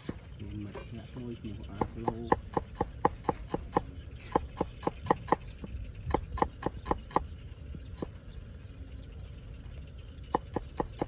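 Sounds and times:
knife chopping on wooden block: 1.8 - 5.4.

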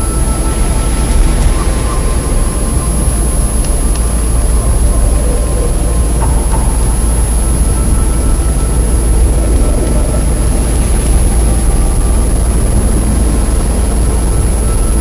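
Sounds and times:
dense electronic drone rumble: 0.0 - 15.0.

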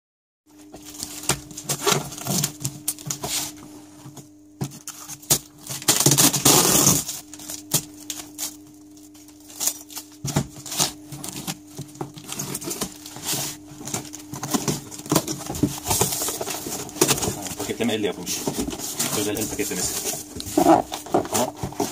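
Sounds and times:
faint steady hum: 0.5 - 21.9
plastic wrap crinkling and tearing: 4.8 - 21.9
tape ripping: 4.9 - 8.6.

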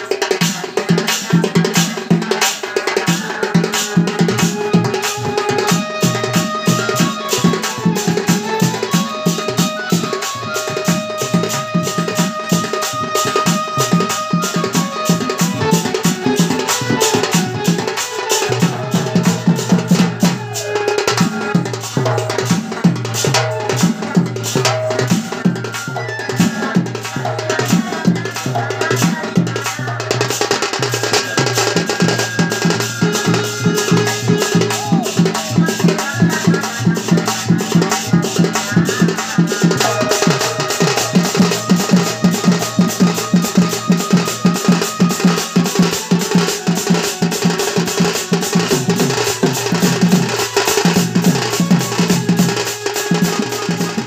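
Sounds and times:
dhol drum beating: 0.0 - 54.0
held melodic note: 39.6 - 54.0.

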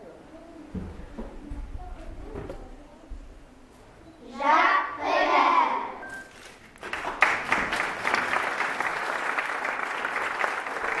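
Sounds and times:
audience applauding: 6.8 - 11.0.

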